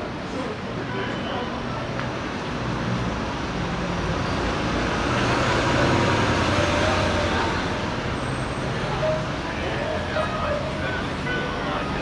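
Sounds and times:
vehicle engine and tyres passing: 2.5s - 12.0s.

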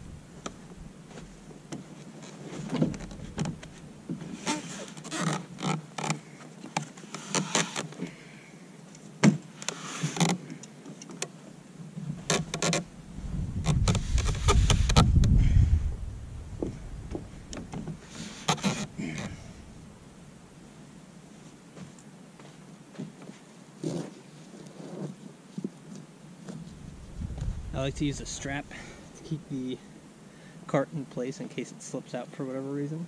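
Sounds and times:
low rumble: 0.0s - 1.4s, 12.9s - 17.6s, 26.7s - 29.5s
kayak handling knocks and scrapes: 0.4s - 8.2s, 9.2s - 11.2s, 13.6s - 15.4s, 16.6s - 19.5s, 23.0s - 25.8s.

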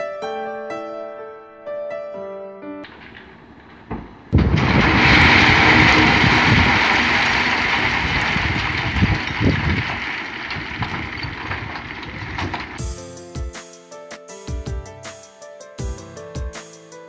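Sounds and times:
rock sliding off truck bed: 2.9s - 12.8s
heavy thuds: 2.9s - 12.9s.

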